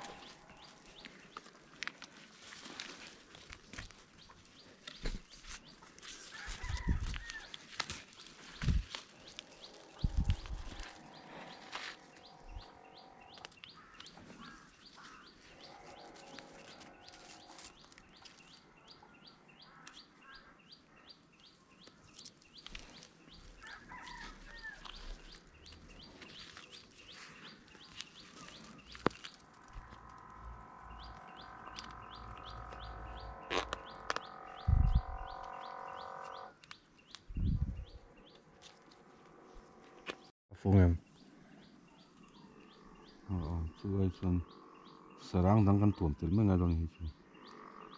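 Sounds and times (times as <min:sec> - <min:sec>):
low rumble: 0:29.7 - 0:35.5.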